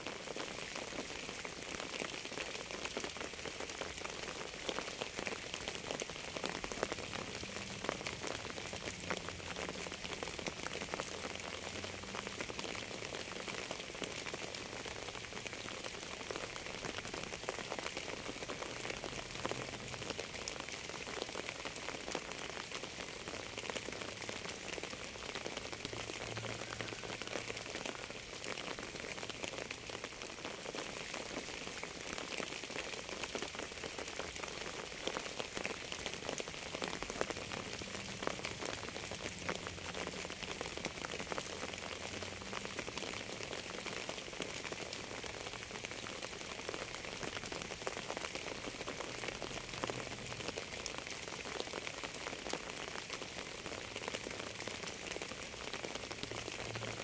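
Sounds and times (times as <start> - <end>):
steady rain: 0.0 - 57.0.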